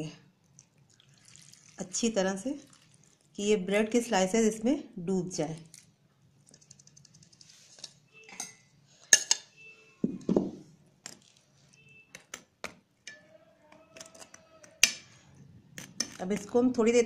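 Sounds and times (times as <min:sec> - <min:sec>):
spoon clinking against a pan: 0:08.3 - 0:09.5, 0:13.1 - 0:13.3.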